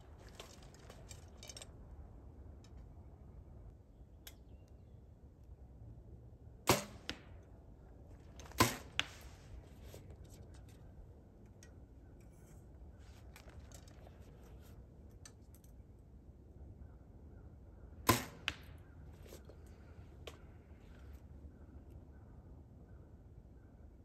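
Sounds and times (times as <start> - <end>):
arrow striking target: 6.7 - 7.4, 8.5 - 9.3, 18.0 - 18.8.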